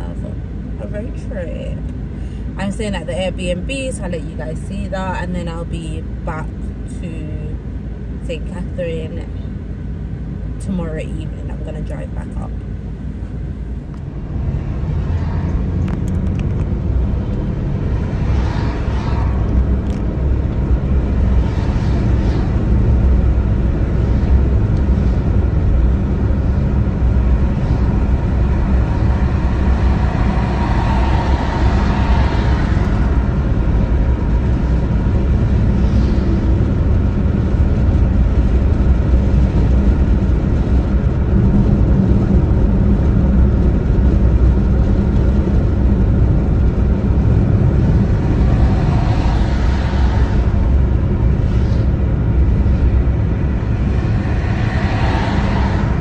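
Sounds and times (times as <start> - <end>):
wind and road hiss: 0.0 - 56.0
tyre and engine rumble: 11.4 - 56.0.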